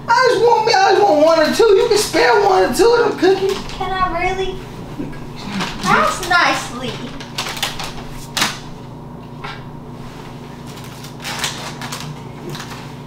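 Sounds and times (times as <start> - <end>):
cookie package crinkling: 5.6 - 8.6, 10.5 - 13.0.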